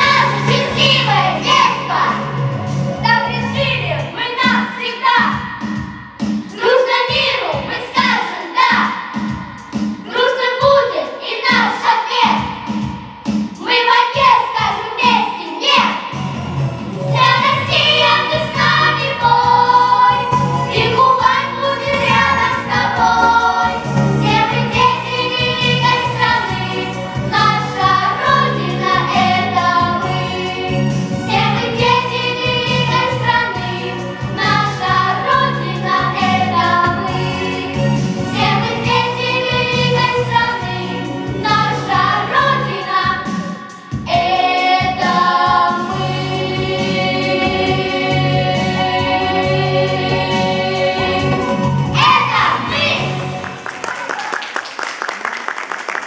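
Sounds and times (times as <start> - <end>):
children singing into microphones: 0.0 - 2.3, 4.1 - 12.7, 13.6 - 16.1, 17.1 - 53.3
instrumental accompaniment: 44.2 - 53.8.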